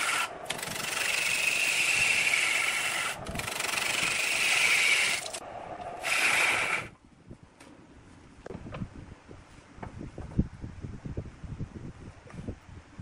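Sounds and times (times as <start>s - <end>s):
lathe tool scraping wood: 0.0s - 5.4s.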